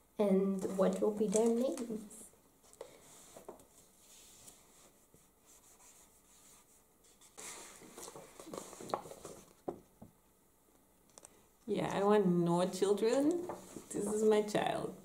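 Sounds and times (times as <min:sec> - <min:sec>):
paper rustling: 0:00.6 - 0:09.7.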